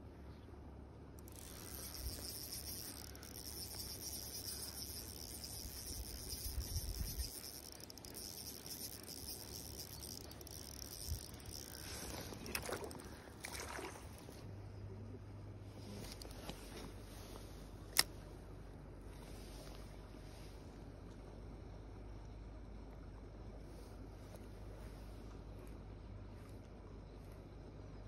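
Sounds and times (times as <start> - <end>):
fishing reel whirring: 1.2 - 14.4.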